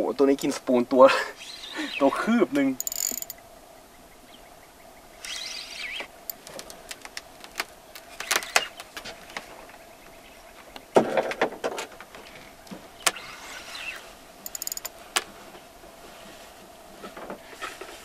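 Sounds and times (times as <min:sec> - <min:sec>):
reel drag clicking: 0:02.8 - 0:03.4, 0:05.2 - 0:07.6, 0:13.0 - 0:14.9
spinning reel whirring: 0:02.8 - 0:03.4, 0:05.2 - 0:06.4, 0:13.2 - 0:14.9.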